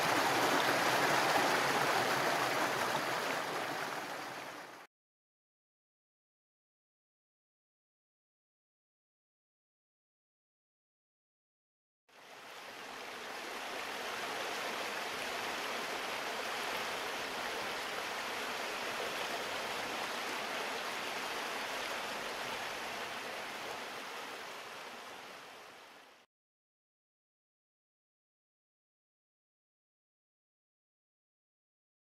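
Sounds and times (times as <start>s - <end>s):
stream rushing over rocks: 0.0s - 4.9s, 12.2s - 26.2s.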